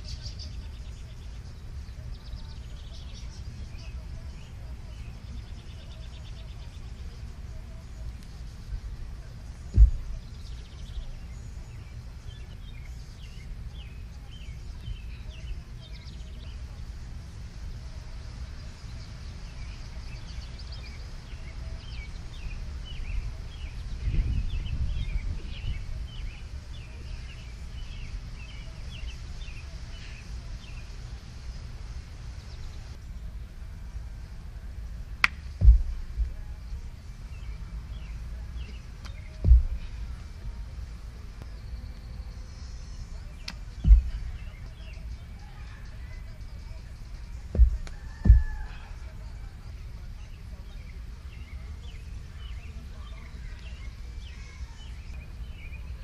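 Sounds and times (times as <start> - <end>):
wind rumble on microphone: 0.0 - 13.8, 22.1 - 42.3, 43.0 - 45.7, 46.6 - 49.2
small birds chirping: 0.0 - 56.0
sharp thump: 9.7 - 10.2, 35.2 - 36.4, 39.4 - 39.9, 43.5 - 44.4, 47.5 - 48.8
dull thud on grass: 9.7 - 11.0, 35.2 - 36.5, 38.6 - 40.2, 43.4 - 44.8, 47.5 - 49.0.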